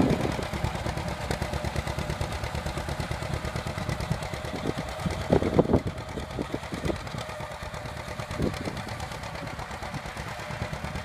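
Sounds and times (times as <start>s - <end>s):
tractor engine popping: 0.0s - 11.0s.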